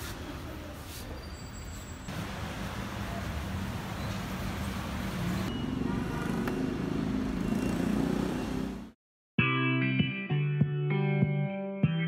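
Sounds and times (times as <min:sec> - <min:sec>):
street traffic rumble: 0:00.0 - 0:09.0.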